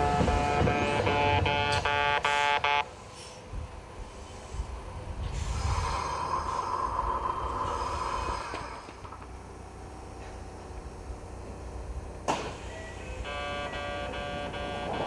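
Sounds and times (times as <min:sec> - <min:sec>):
train pulling in: 0:00.0 - 0:15.0
train brake squeal: 0:03.0 - 0:03.5, 0:12.4 - 0:15.0.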